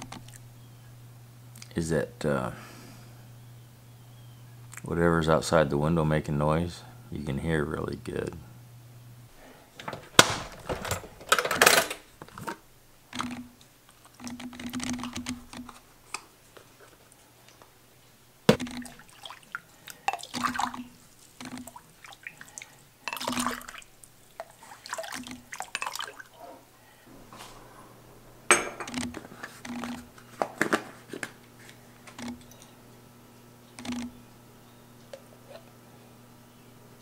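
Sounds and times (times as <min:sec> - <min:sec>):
liquid pouring and dripping: 0:18.5 - 0:26.5
ladle knocking against pot: 0:28.5 - 0:29.0.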